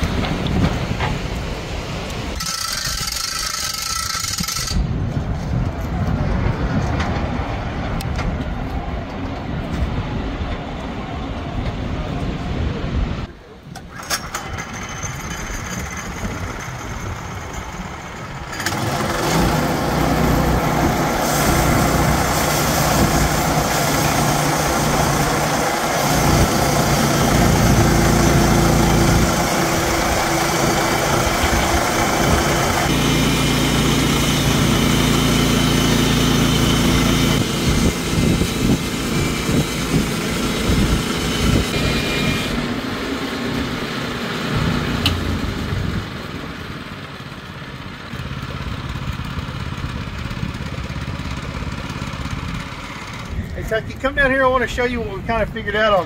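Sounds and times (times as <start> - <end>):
bandsaw blade cutting log: 2.4 - 4.9, 18.5 - 42.8
gas engine under load: 13.6 - 54.6.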